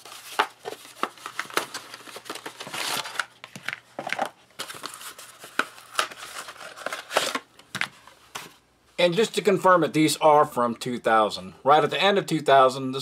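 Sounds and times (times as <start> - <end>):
cardboard and foil rustling: 0.0 - 7.5.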